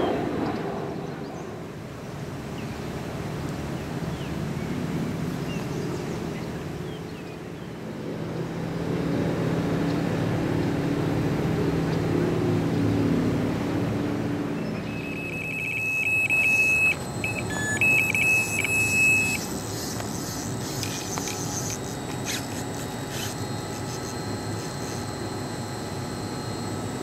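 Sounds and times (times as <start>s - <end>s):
electronic bite alarm beeping: 14.8s - 27.0s.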